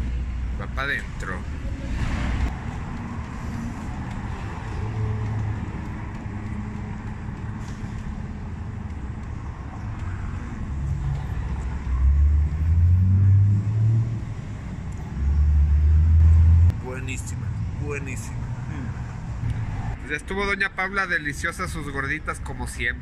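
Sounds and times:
road traffic rumble: 0.0s - 23.0s
vehicle droning past: 10.0s - 14.5s, 15.1s - 20.0s.

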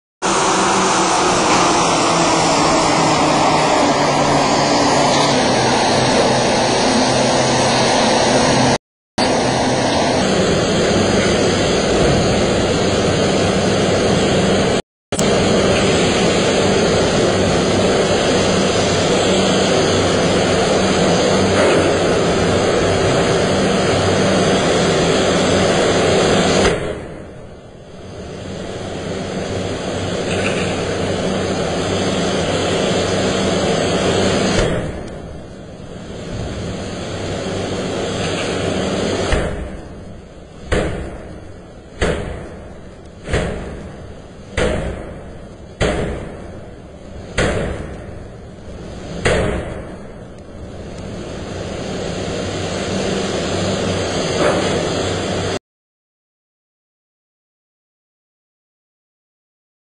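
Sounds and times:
forge machinery roaring: 0.2s - 55.6s.

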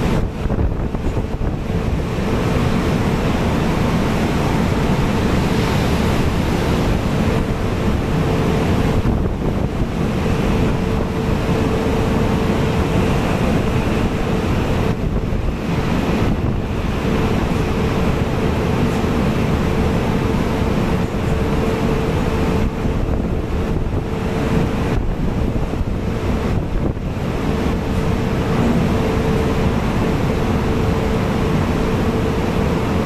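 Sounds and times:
huge wave breaking: 0.0s - 19.9s, 22.4s - 32.8s
rough sea waves: 0.0s - 33.0s
steady hum: 0.0s - 33.0s
wind buffeting microphone: 0.0s - 33.0s.

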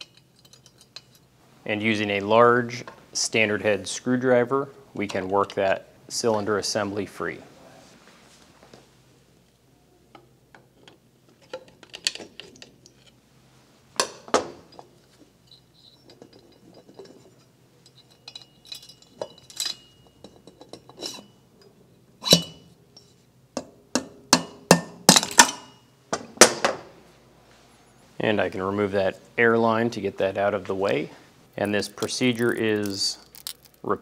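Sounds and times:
metallic clinks and knocks: 0.0s - 1.3s, 14.2s - 25.9s, 32.0s - 33.8s.

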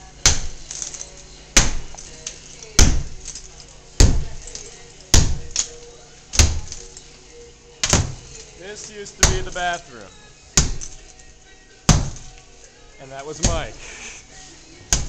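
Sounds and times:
sledgehammer striking tiled wall: 0.2s - 0.9s, 1.5s - 2.1s, 2.8s - 3.3s, 4.0s - 4.5s, 5.1s - 5.7s, 6.3s - 6.8s, 7.8s - 8.4s, 9.2s - 9.6s, 10.5s - 11.1s, 11.9s - 12.4s, 13.4s - 13.8s.

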